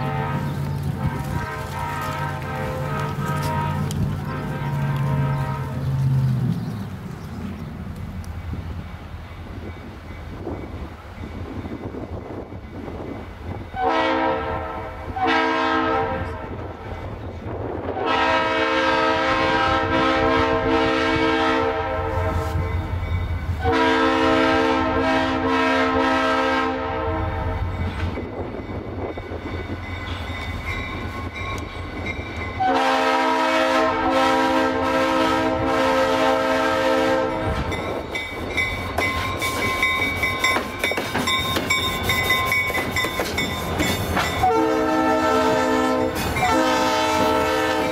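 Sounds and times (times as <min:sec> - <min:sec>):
locomotive air horn blasts: 0:00.0 - 0:06.0, 0:13.8 - 0:16.8, 0:17.9 - 0:22.8, 0:23.6 - 0:27.8, 0:32.6 - 0:37.8, 0:44.2 - 0:47.9
locomotive engine rumble: 0:00.0 - 0:47.9
wheels clattering over rail joints: 0:37.6 - 0:44.5.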